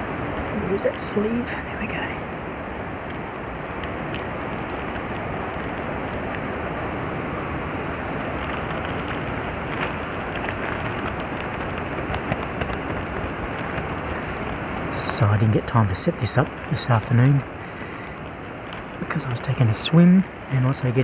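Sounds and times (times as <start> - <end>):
steady rushing noise: 0.0 - 21.0
plastic bag and foil crinkling: 3.7 - 6.4, 8.3 - 15.1.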